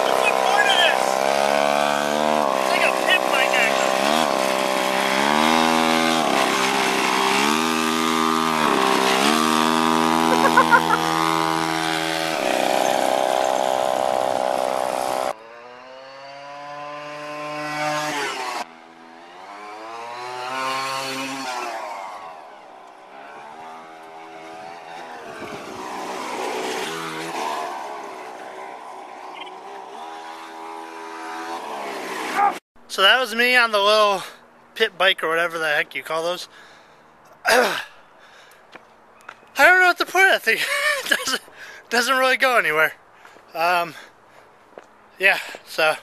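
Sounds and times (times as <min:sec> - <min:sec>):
small engine revving: 0:00.0 - 0:32.6.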